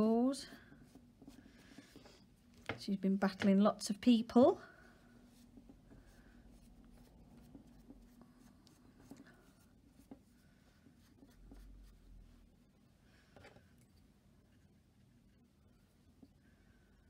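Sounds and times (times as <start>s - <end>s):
tissue rubbing on hard surface: 0.0s - 2.6s, 4.3s - 13.0s
faint steady hum: 0.0s - 17.0s.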